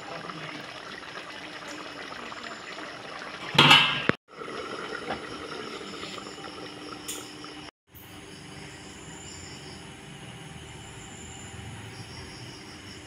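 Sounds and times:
stew bubbling and hissing: 0:00.0 - 0:07.7.

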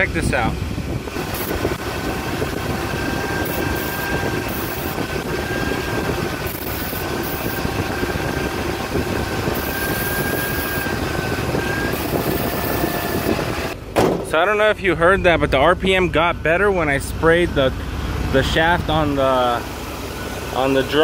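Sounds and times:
car engine idling: 0:13.5 - 0:21.0.

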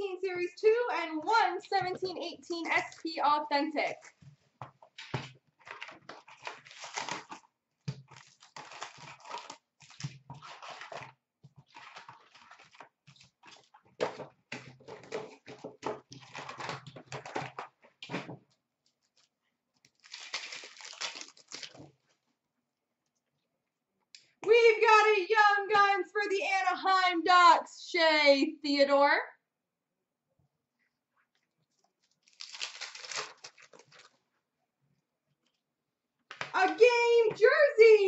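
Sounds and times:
plastic wrap crinkling and tearing: 0:05.0 - 0:18.2, 0:18.9 - 0:22.2, 0:32.0 - 0:34.2.

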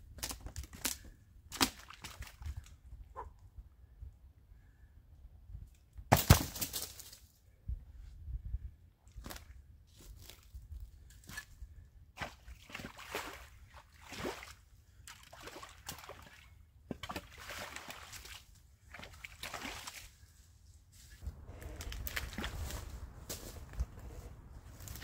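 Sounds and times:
creek water sloshing and splashing: 0:01.5 - 0:02.7, 0:12.2 - 0:20.3, 0:21.6 - 0:23.6.

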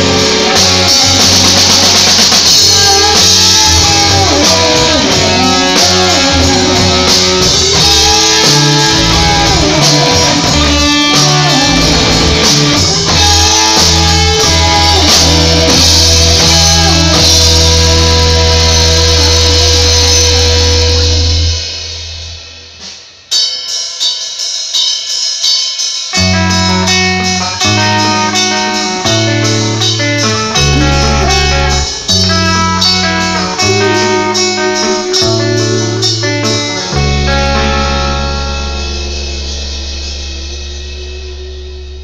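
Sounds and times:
clean electric guitar picking: 0:00.0 - 0:22.2, 0:26.1 - 0:42.0
bass guitar long notes: 0:00.0 - 0:23.0, 0:26.2 - 0:42.0
held rock band chord: 0:00.0 - 0:25.2, 0:26.0 - 0:42.0
drums: 0:00.0 - 0:42.0.

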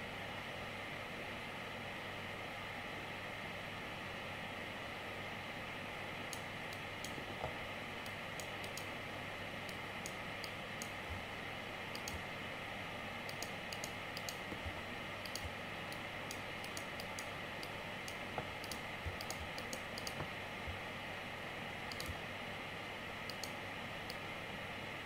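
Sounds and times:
computer mouse clicks: 0:06.3 - 0:08.9, 0:09.6 - 0:11.2, 0:11.9 - 0:12.3, 0:13.2 - 0:20.8, 0:21.9 - 0:22.2, 0:23.3 - 0:24.2.

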